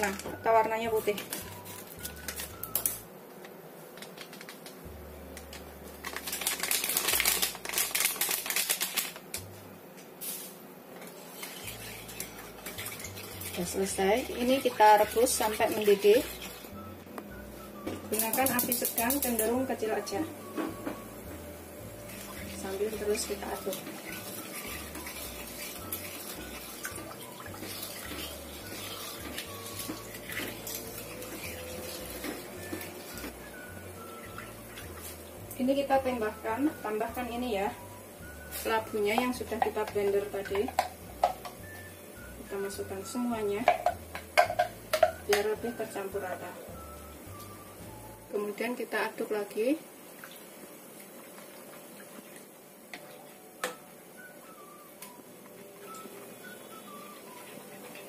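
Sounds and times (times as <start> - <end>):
sachet crinkling and shaken: 1.0 - 3.0, 4.0 - 4.8, 5.4 - 9.5
spoon scraping a pan: 10.2 - 13.4
liquid sloshing in a pan: 11.4 - 16.7.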